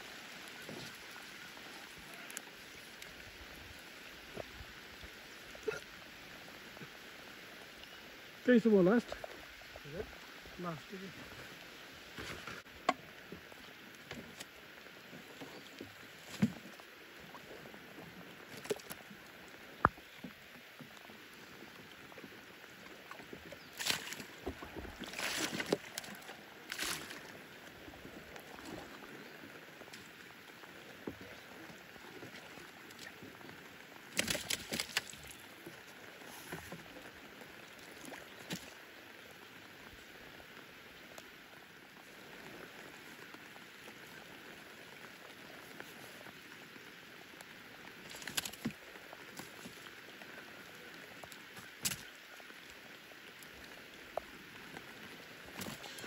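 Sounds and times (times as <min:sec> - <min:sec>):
paddle dipping and splashing: 0:00.0 - 0:56.0
rain falling on a lake: 0:00.0 - 0:56.0.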